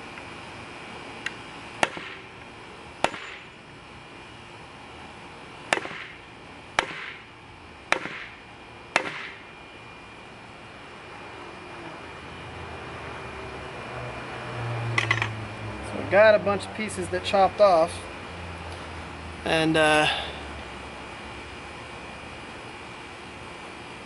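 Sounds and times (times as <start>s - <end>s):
knife chopping wood: 1.8s - 2.2s, 3.0s - 3.4s, 5.7s - 6.2s, 6.8s - 7.2s, 7.9s - 8.3s, 9.0s - 9.4s.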